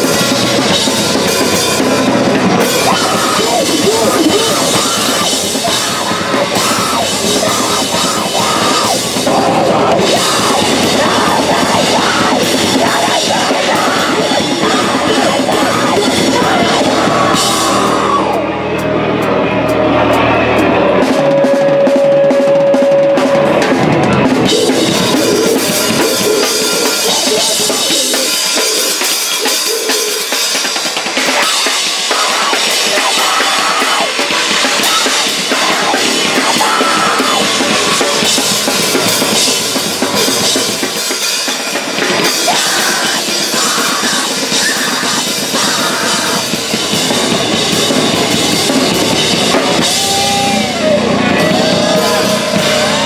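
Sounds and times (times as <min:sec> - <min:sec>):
live rock band playing: 0:00.0 - 0:53.0
bass drum and snare: 0:20.1 - 0:53.0.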